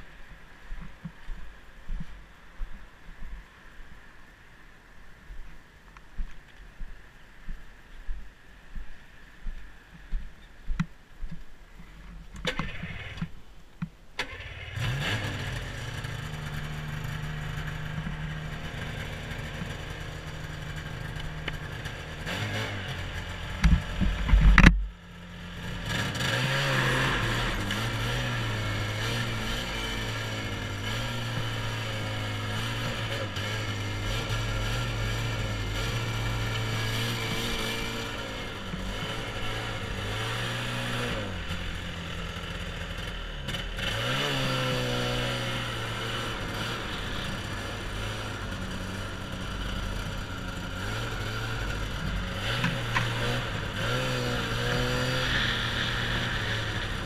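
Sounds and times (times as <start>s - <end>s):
snowmobile engine running: 14.4s - 24.8s, 25.6s - 57.0s.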